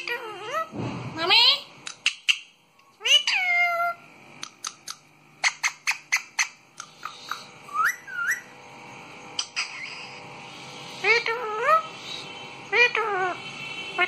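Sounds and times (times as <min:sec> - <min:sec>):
parakeets calling: 0:01.4 - 0:14.0.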